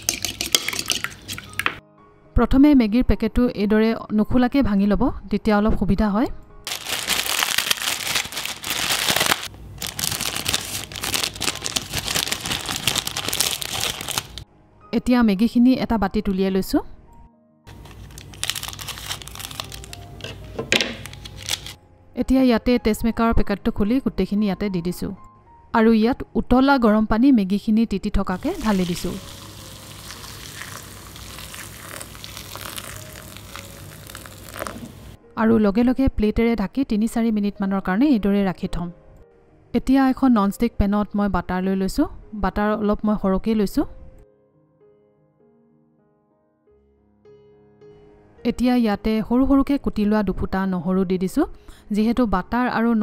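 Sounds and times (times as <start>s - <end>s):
dry noodles being crushed: 6.7s - 14.4s, 17.7s - 21.8s, 28.4s - 35.2s
plastic packet crinkling: 6.7s - 14.4s, 17.7s - 21.8s, 28.4s - 35.2s
hot water pouring into bowl: 28.4s - 35.2s.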